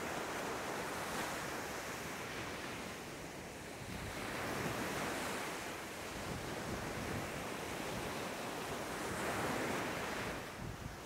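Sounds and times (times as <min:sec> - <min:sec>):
waves breaking on sandy beach: 0:00.0 - 0:11.0.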